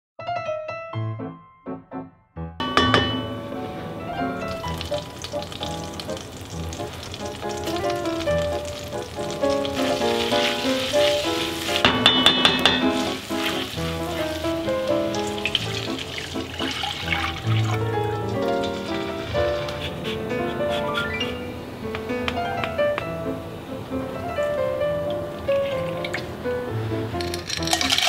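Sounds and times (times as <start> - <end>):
background music: 0.2 - 28.0
garlic sizzling in butter: 4.3 - 20.2, 27.2 - 28.0.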